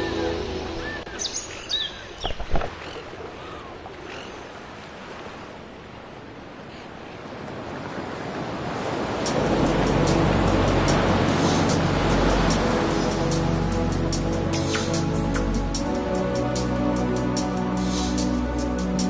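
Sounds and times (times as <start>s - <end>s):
background music: 0.0s - 1.1s, 9.2s - 19.0s
rushing hiss: 9.3s - 16.0s, 17.4s - 19.0s.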